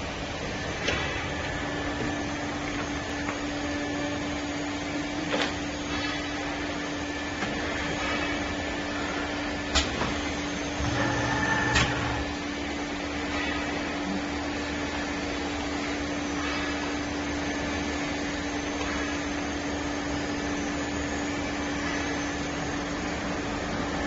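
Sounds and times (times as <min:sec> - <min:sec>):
filling machine humming: 0:10.4 - 0:12.5.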